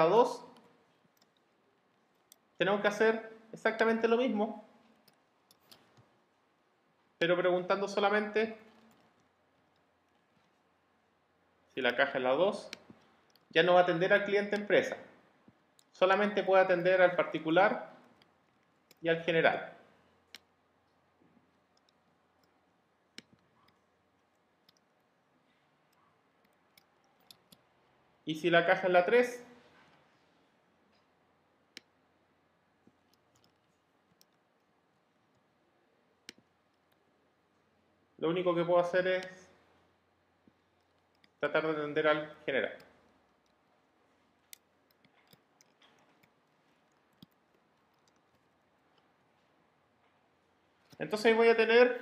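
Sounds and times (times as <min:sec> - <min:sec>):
keyboard and mouse clicks: 0:00.5 - 0:03.0, 0:04.8 - 0:06.2, 0:08.6 - 0:10.7, 0:11.8 - 0:13.6, 0:14.2 - 0:15.9, 0:20.1 - 0:25.1, 0:25.8 - 0:28.0, 0:32.8 - 0:34.7, 0:36.2 - 0:37.1, 0:39.2 - 0:49.6.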